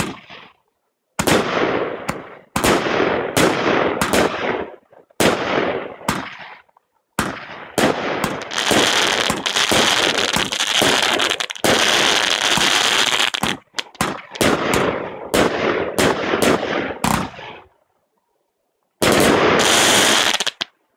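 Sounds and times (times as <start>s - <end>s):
fireworks launching and bursting: 0.0s - 0.6s, 1.2s - 17.7s, 19.0s - 20.7s
firework crackling: 7.2s - 17.5s, 19.0s - 20.7s.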